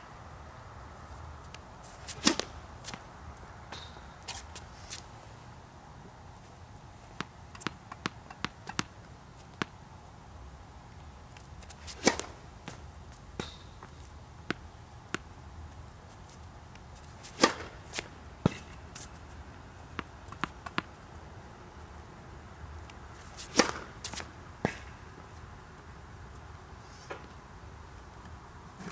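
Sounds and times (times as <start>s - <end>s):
racket hitting tennis ball: 1.8s - 3.0s, 7.2s - 9.0s, 11.6s - 15.3s, 17.0s - 19.2s, 23.2s - 25.0s.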